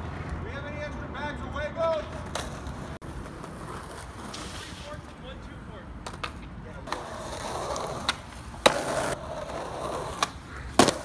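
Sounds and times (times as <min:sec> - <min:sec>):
skateboard rolling on concrete: 0:01.7 - 0:11.0
skateboard clack: 0:01.8 - 0:05.1, 0:05.9 - 0:11.0.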